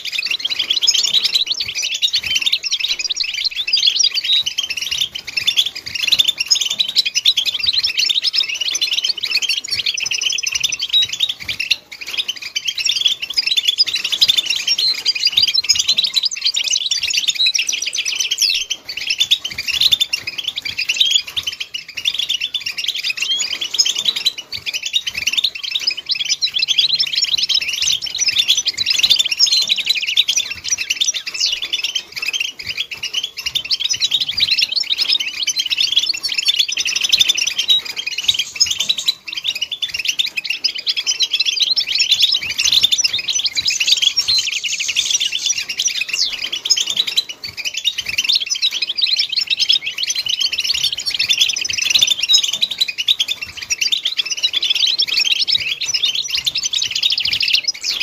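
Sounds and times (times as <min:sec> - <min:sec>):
finches twittering: 0:00.0 - 0:58.0.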